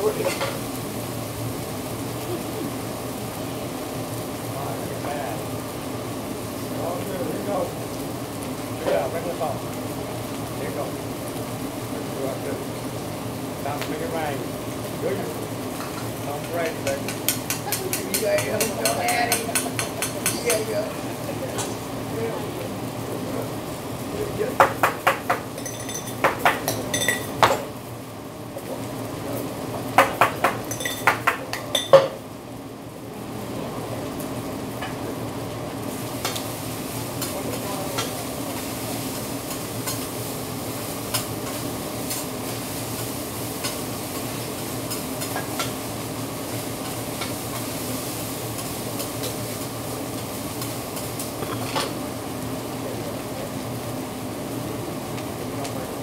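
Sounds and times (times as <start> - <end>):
rice sizzling on a griddle: 0.0 - 56.0.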